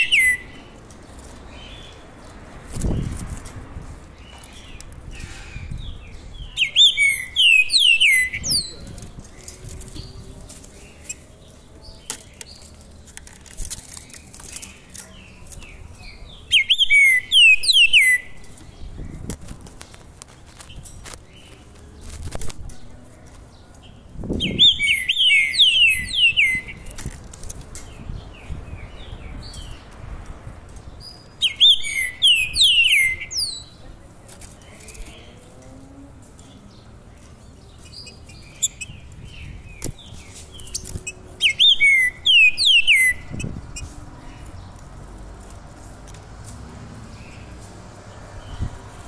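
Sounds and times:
songbird whistling: 0.0 - 0.6, 6.6 - 8.7, 16.5 - 18.3, 24.4 - 26.8, 31.4 - 33.6, 41.4 - 43.9.

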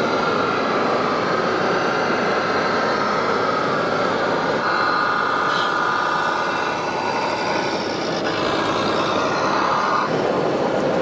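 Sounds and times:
model truck drive whine: 0.0 - 11.0.

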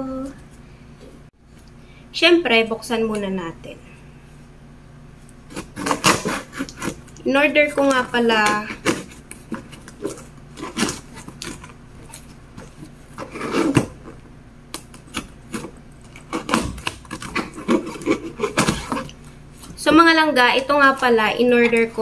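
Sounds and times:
cardboard rustling: 5.5 - 7.0, 15.1 - 22.0
scissors scraping and snipping tape: 5.5 - 7.0, 14.8 - 19.2.

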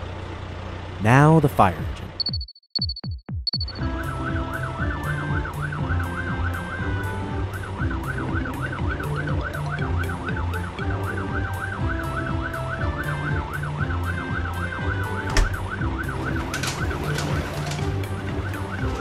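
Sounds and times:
background music with bass: 3.7 - 19.0
cartoon siren wailing: 4.2 - 19.0.

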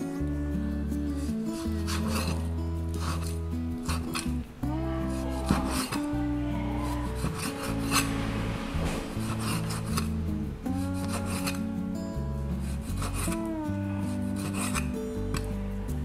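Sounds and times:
background music: 0.0 - 16.0
cleaver cutting through meat: 1.6 - 4.5, 5.1 - 6.2, 6.8 - 8.3, 8.9 - 11.7, 12.6 - 15.5.

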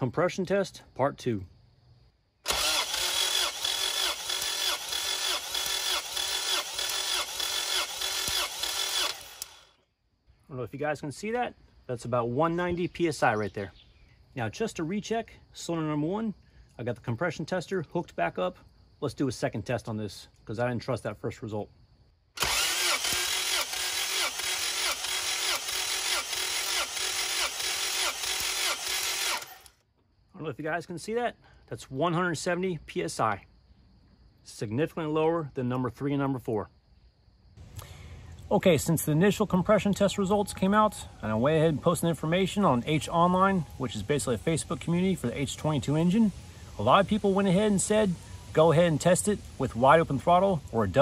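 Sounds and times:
starter motor cranking engine: 2.4 - 9.8, 22.4 - 29.8.

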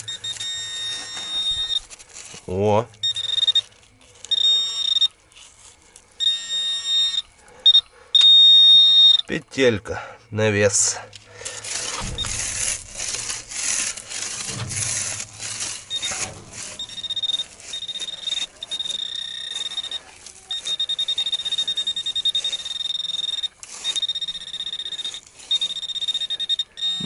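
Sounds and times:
metal detector high-pitched tone: 0.0 - 1.9, 2.9 - 5.2, 6.2 - 9.4, 15.4 - 27.0
rustling and scraping: 0.0 - 6.4, 11.1 - 27.0.

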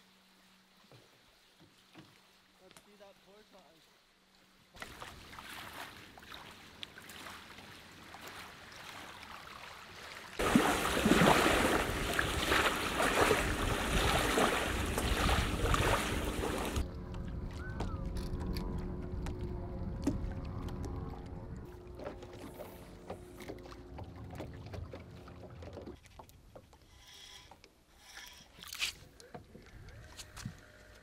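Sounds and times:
wind: 0.0 - 31.0
water lapping: 0.9 - 17.9, 18.6 - 30.9
splashing waves: 1.1 - 17.7
boat motor humming: 10.4 - 26.6.

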